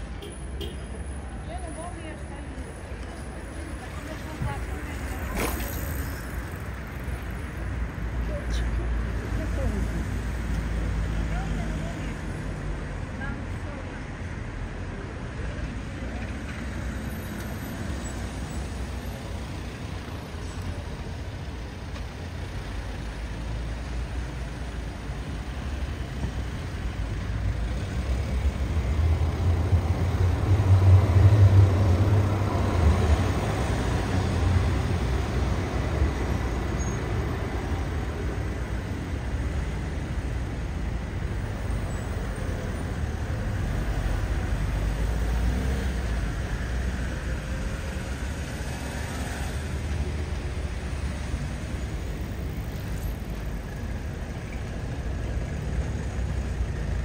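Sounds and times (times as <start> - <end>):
street traffic: 0.0 - 57.0.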